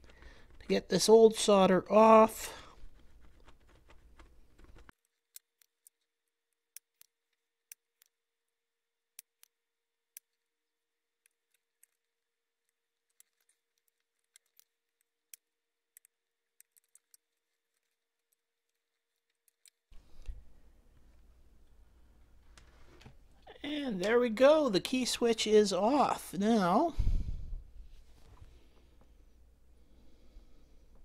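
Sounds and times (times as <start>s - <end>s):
faint steady hum: 20.0s - 31.0s.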